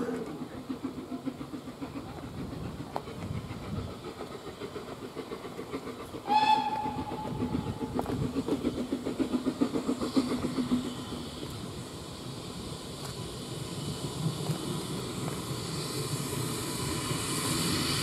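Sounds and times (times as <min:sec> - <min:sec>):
steam locomotive whistle: 0:06.2 - 0:07.9.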